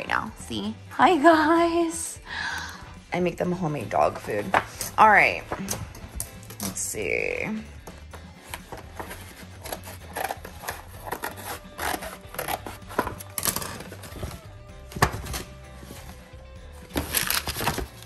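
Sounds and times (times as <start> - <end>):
background music: 0.0 - 18.0
packaging scraping and rustling: 8.4 - 16.2, 16.8 - 18.0.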